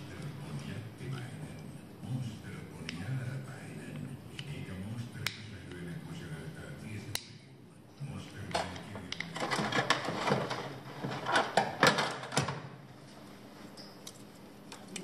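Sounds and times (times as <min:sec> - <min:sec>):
tools clattering in drawer: 0:08.5 - 0:12.6.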